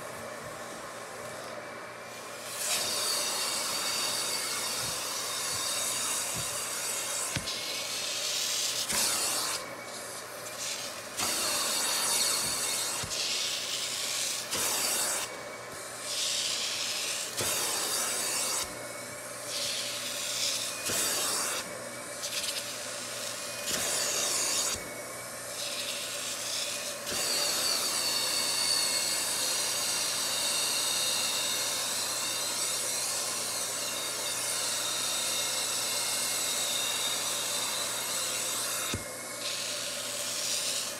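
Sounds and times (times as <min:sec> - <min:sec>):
suction wand hissing on fabric: 0:02.1 - 0:29.4.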